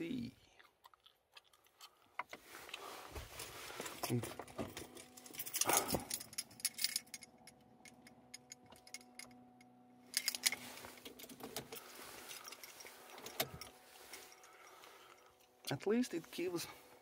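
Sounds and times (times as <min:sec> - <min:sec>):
car keys jangling at ignition: 0:03.4 - 0:09.5, 0:10.1 - 0:15.6.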